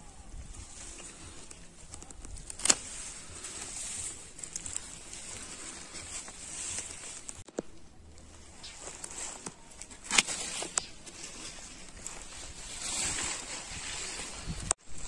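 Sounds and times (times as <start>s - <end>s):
leaves rustling: 0.0s - 15.0s
pruning shears snipping: 1.8s - 3.2s, 8.6s - 12.2s.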